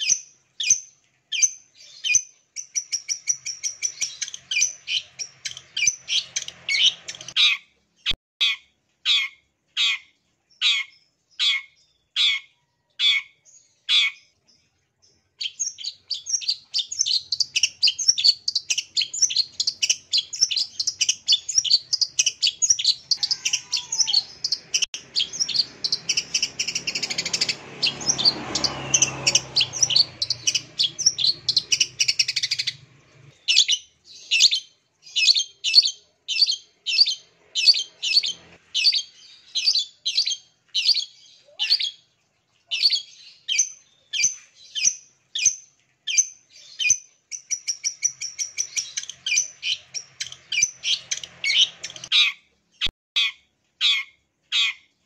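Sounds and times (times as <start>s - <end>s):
shrike calling: 15.4s - 42.0s.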